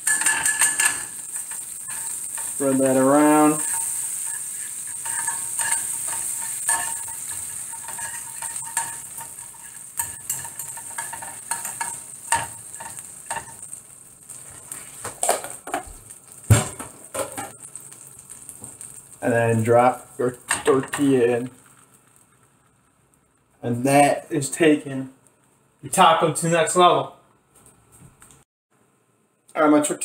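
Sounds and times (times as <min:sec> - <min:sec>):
utensil scraping and tapping pan: 0:00.0 - 0:13.7
butter and oil sizzling in pan: 0:00.0 - 0:25.8
knock on pan: 0:15.1 - 0:17.5.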